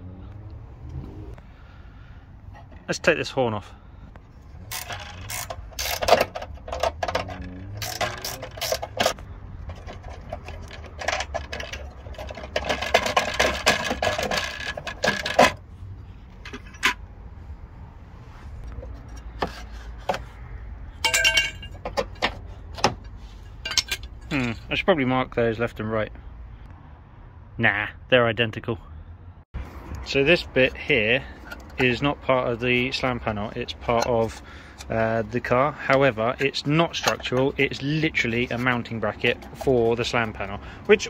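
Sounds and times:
spanner and bolts clinking: 0:04.6 - 0:15.6, 0:21.0 - 0:24.5, 0:31.3 - 0:32.2.

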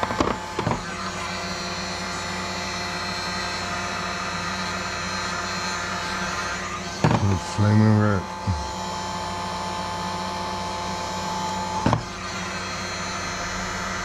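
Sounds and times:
heat gun fan humming: 0:00.0 - 0:14.0
person speaking: 0:07.1 - 0:08.8.

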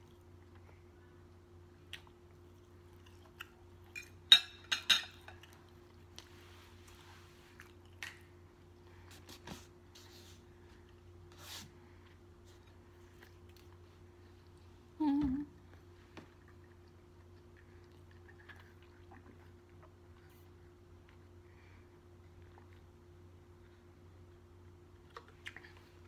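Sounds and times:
low steady hum: 0:00.0 - 0:26.0
closed-mouth chewing: 0:16.2 - 0:21.4.

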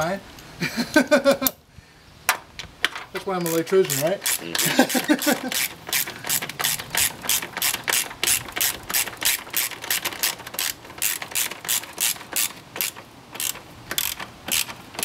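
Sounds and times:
ratchet wrench clicking: 0:03.2 - 0:15.0.

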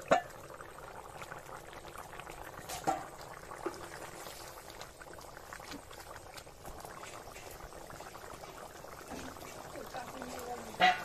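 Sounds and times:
curry bubbling in a pot: 0:00.0 - 0:11.0.

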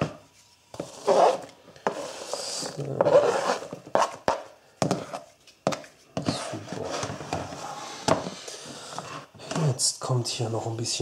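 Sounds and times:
bowl rubbing on board: 0:00.8 - 0:04.3.

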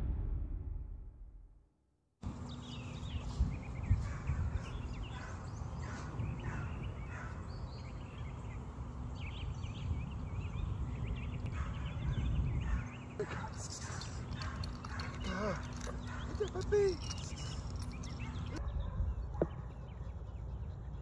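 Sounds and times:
low rumble: 0:00.0 - 0:01.6
birds chirping: 0:02.2 - 0:21.0.

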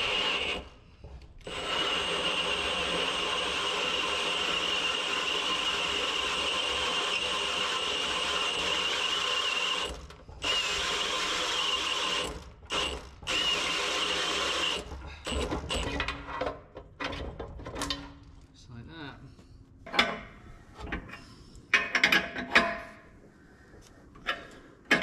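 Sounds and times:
cordless drill boring metal: 0:00.0 - 0:00.8, 0:01.4 - 0:16.1.

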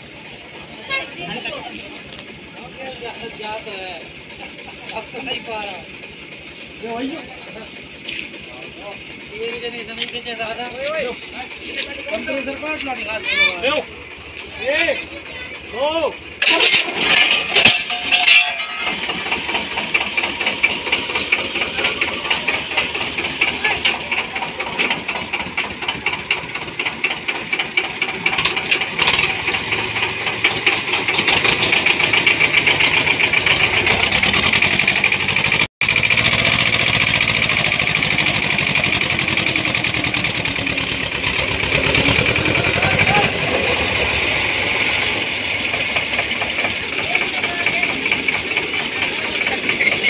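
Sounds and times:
diesel tractor engine chugging: 0:00.0 - 0:50.0.

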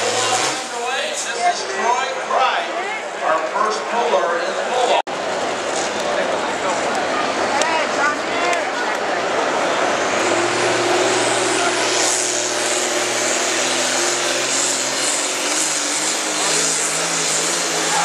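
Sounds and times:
tractor diesel engine at full throttle: 0:00.0 - 0:01.4, 0:05.1 - 0:18.0.

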